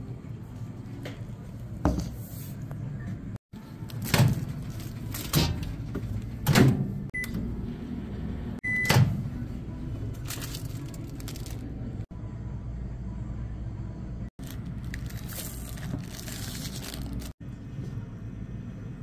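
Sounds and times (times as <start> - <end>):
microwave keypad beeping: 8.6 - 9.1.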